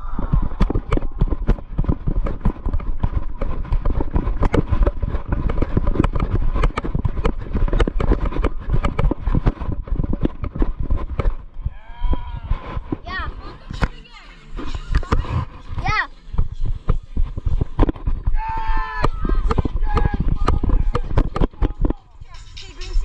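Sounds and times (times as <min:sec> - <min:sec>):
running footfalls on grass: 0:00.0 - 0:13.2
wind buffeting microphone: 0:00.0 - 0:14.0, 0:14.6 - 0:23.0.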